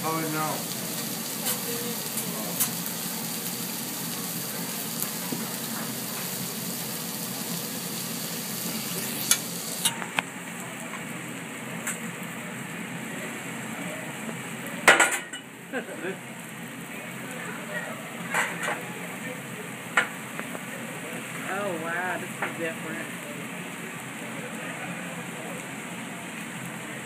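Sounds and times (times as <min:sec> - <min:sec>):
food sizzling on a griddle: 0:00.0 - 0:27.0.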